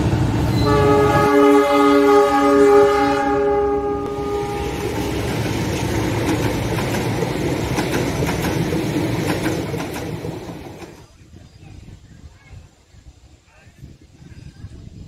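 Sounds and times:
train rumble and wheel clatter: 0:00.0 - 0:12.6
train horn chord: 0:00.5 - 0:05.2.

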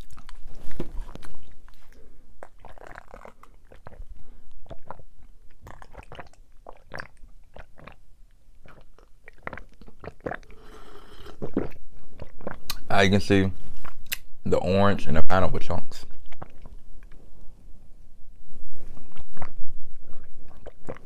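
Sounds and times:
man chewing: 0:00.0 - 0:08.0, 0:08.6 - 0:12.8, 0:19.0 - 0:21.0
gulping swallows: 0:02.4 - 0:08.0, 0:08.6 - 0:12.8, 0:16.1 - 0:17.2, 0:19.0 - 0:21.0.

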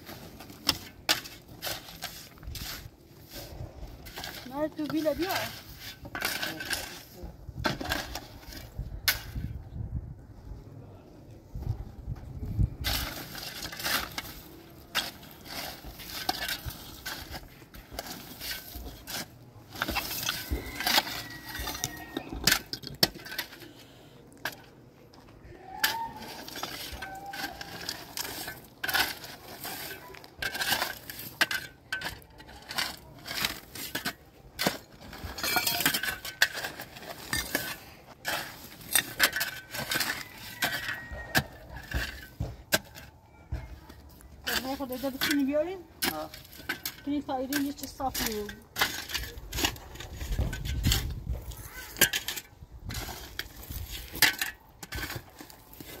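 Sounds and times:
small hard objects clinking: 0:12.8 - 0:56.0.

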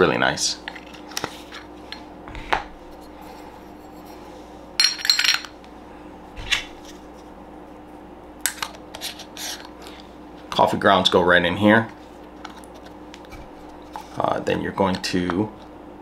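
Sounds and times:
low steady hum: 0:00.0 - 0:16.0
metal parts clinking: 0:04.8 - 0:05.5.

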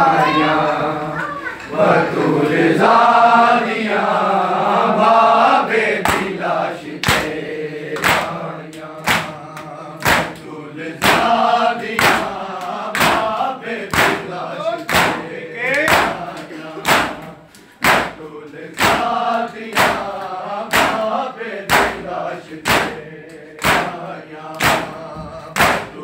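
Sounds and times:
men chanting together: 0:00.0 - 0:26.0
hands slapping bare chests: 0:06.0 - 0:06.4, 0:07.0 - 0:07.4, 0:08.0 - 0:11.4, 0:12.0 - 0:14.3, 0:14.9 - 0:18.2, 0:18.8 - 0:21.0, 0:21.7 - 0:22.0, 0:22.6 - 0:23.0, 0:23.6 - 0:24.0, 0:24.6 - 0:24.9, 0:25.6 - 0:26.0.

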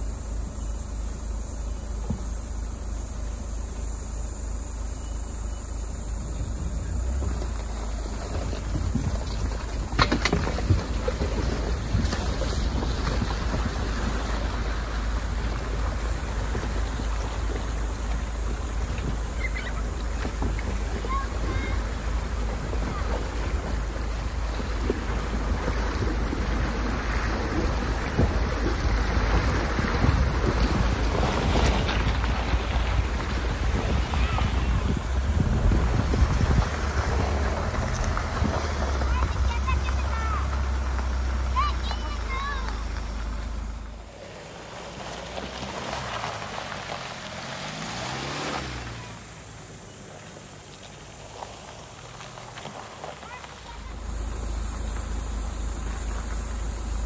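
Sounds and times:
low engine rumble: 0:00.0 - 0:57.0
wind buffeting microphone: 0:06.1 - 0:07.5, 0:25.4 - 0:40.1
water splashing around wheels: 0:06.2 - 0:57.0.

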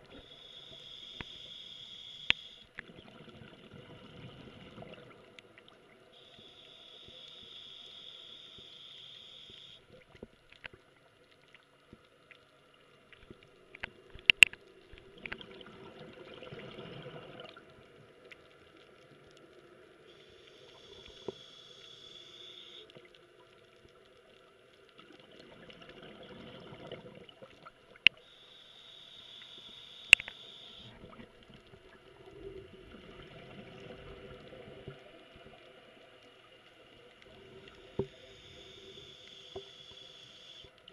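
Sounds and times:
regulator hissing inhalations: 0:00.2 - 0:02.7, 0:06.2 - 0:09.8
sharp clicks: 0:30.0 - 0:30.4.

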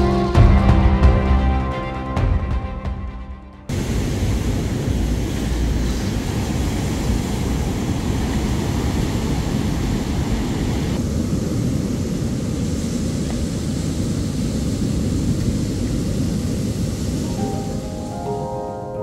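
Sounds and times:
waves breaking on beach: 0:03.7 - 0:18.6.

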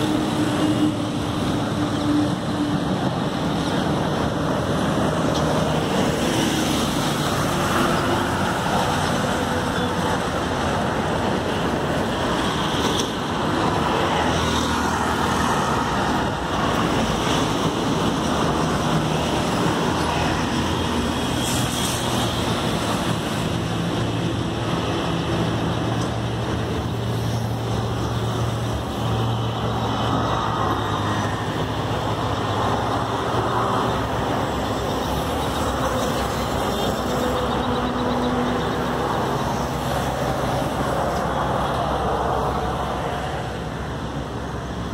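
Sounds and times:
highway traffic noise: 0:00.0 - 0:44.9.

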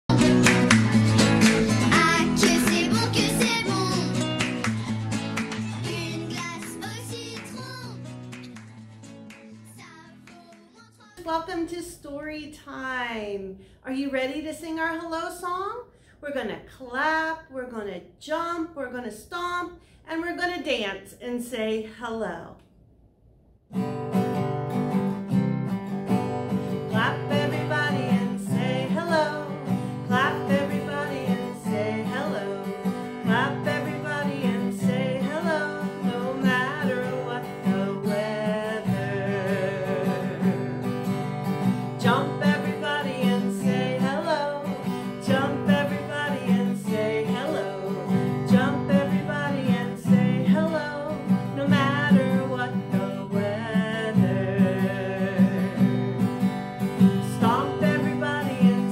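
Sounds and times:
acoustic guitar strumming: 0:00.0 - 0:11.7, 0:23.7 - 0:58.9
woman singing: 0:01.8 - 0:04.3, 0:26.7 - 0:41.0, 0:41.8 - 0:56.3, 0:57.0 - 0:58.9.

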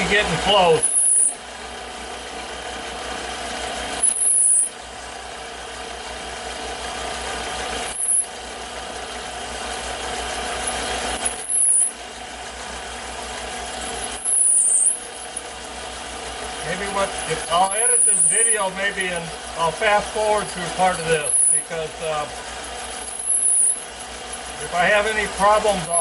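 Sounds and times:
lathe cutting metal: 0:00.0 - 0:26.0.

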